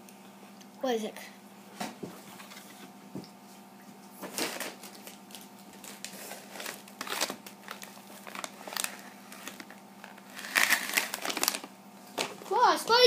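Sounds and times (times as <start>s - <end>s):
plastic packaging crinkling: 4.3s - 12.3s.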